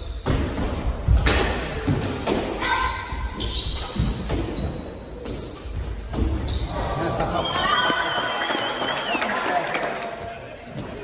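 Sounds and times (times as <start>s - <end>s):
sneakers squeaking on hardwood: 0.0s - 7.3s.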